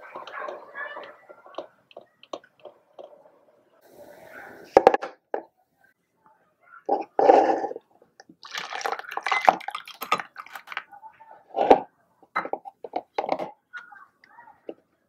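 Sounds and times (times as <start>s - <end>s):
water and pasta pouring: 8.3s - 11.0s
water splashing: 8.4s - 10.9s.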